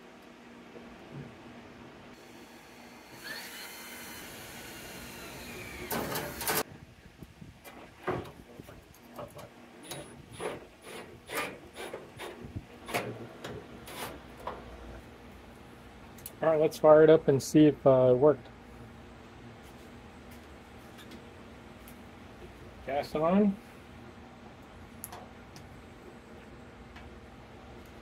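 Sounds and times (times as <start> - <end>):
cordless drill whining: 2.2 - 6.6
drill biting into metal: 3.1 - 6.6.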